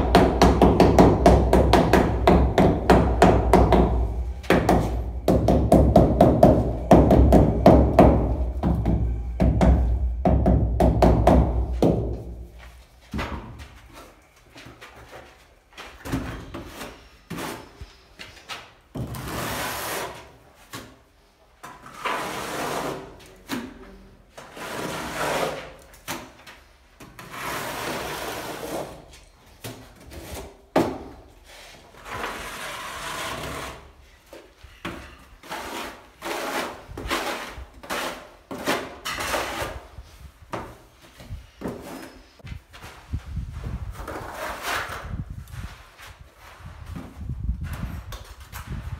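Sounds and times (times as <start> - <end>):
trowel scraping tile adhesive: 16.5 - 18.1, 19.0 - 20.4, 21.8 - 23.4, 24.4 - 26.0, 27.2 - 29.0, 31.9 - 34.0, 35.3 - 40.0, 44.0 - 45.1.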